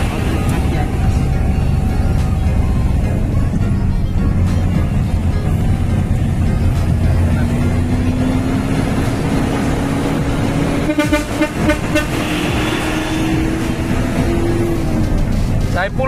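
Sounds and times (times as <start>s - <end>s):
truck engine running: 0.0s - 16.0s
pulsing horn toot: 10.6s - 14.0s.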